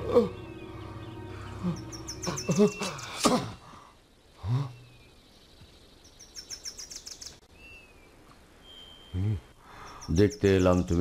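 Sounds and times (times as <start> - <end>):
whistled bird calls: 0.0 - 3.2, 6.2 - 9.2
birds chirping: 0.0 - 11.0.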